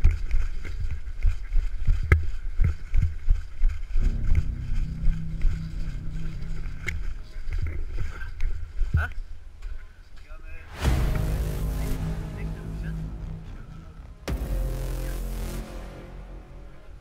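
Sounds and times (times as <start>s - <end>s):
microphone handling rumble: 4.0s - 8.8s.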